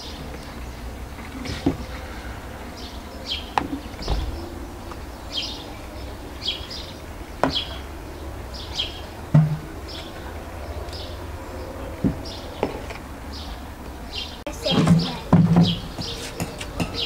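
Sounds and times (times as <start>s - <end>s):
steady low rumble: 2.0s - 13.3s
sharp knocks: 3.6s - 4.7s, 9.3s - 9.7s.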